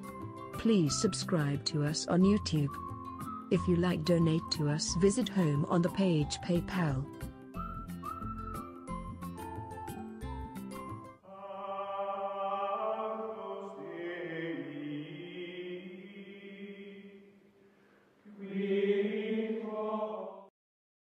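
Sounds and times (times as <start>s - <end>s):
choral chanting: 11.2s - 17.4s, 18.3s - 20.5s.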